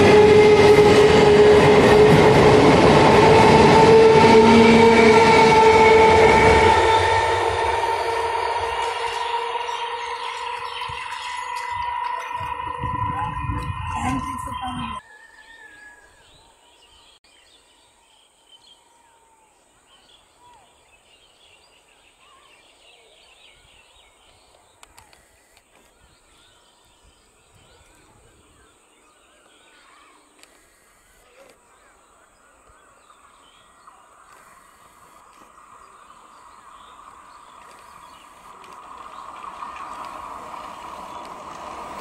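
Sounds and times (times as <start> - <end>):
steady high-pitched tone: 0.1 - 15.0.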